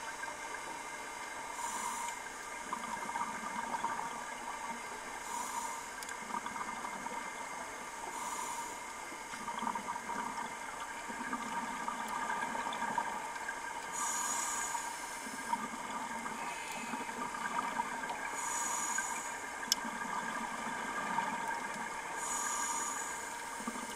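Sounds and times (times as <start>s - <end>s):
underwater hum: 0.0s - 23.9s
regulator inhalation hiss: 1.5s - 2.4s, 5.2s - 6.0s, 8.1s - 9.0s, 13.9s - 15.5s, 18.3s - 19.6s, 22.2s - 23.9s.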